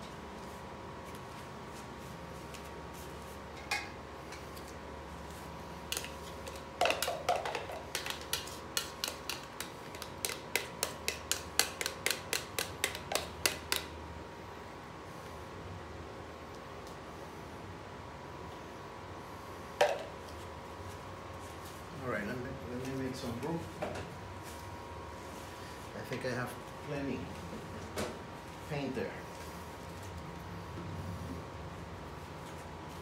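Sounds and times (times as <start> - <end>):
stick clicking against plastic cup: 5.9 - 13.9.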